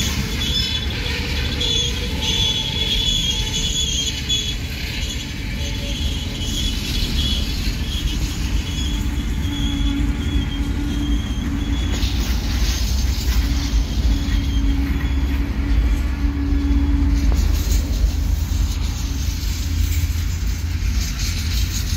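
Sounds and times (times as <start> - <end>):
steel wheels rumbling on rails: 0.0 - 21.9
thin wheel squeal: 0.0 - 21.9.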